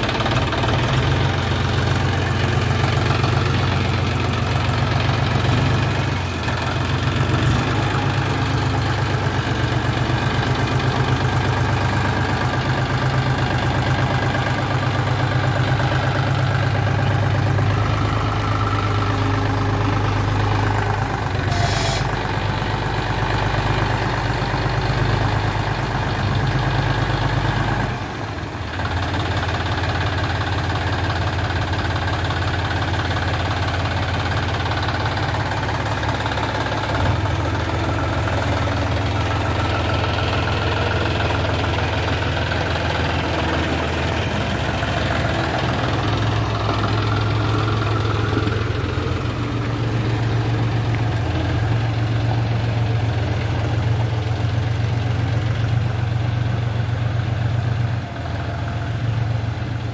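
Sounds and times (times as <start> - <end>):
tractor diesel engine running: 0.0 - 59.9
tyres on gravel: 33.5 - 54.1.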